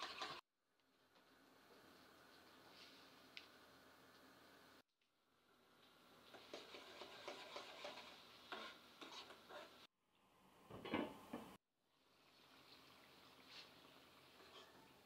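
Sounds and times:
metal spatula scraping pan: 0.0 - 0.4, 6.3 - 9.9, 14.4 - 15.0
faint sizzle: 0.8 - 10.4, 11.9 - 15.0.

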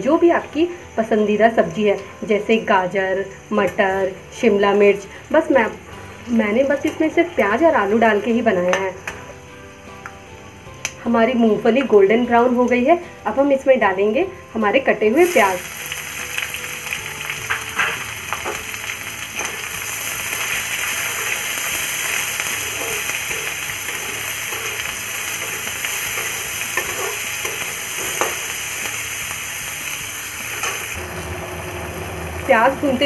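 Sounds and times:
onions sizzling in hot oil: 0.0 - 33.0
spatula scraping and tapping pan: 20.4 - 28.4.

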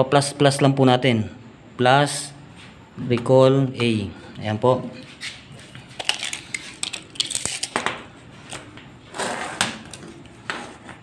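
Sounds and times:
tape measure clicks and scrapes: 6.0 - 7.8.

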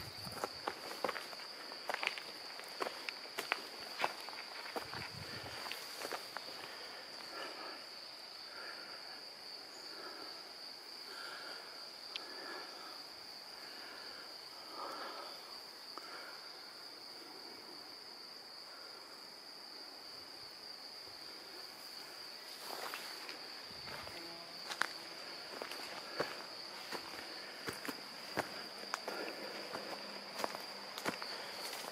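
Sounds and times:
footsteps on forest floor: 0.0 - 7.4, 22.5 - 31.9
high-pitched insect drone: 0.0 - 31.9.

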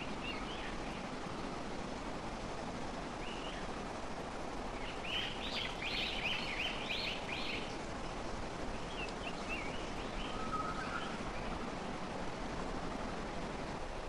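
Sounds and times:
bird calling: 8.7 - 11.5.

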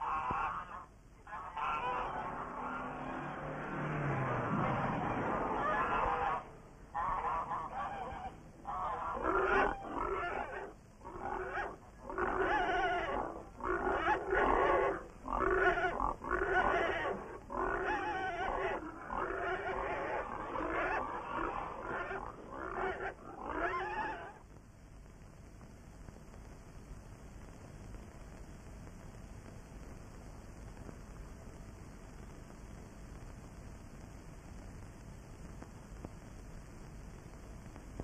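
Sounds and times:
loud wavering vocal cries: 0.0 - 24.4.

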